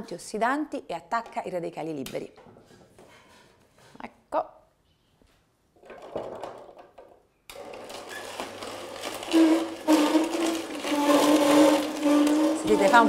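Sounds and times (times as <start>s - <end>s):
juicer crunching beetroot: 7.5s - 13.0s
juicer motor whine: 7.5s - 13.0s.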